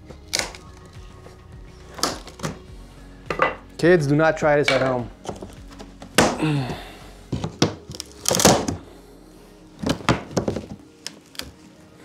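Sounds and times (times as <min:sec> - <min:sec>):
knocks and clunks of wood and metal: 0:09.8 - 0:10.8.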